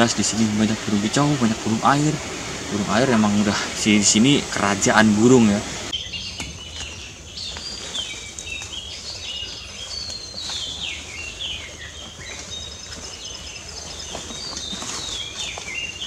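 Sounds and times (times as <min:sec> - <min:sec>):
chorus of wild birds calling: 0:00.0 - 0:16.0.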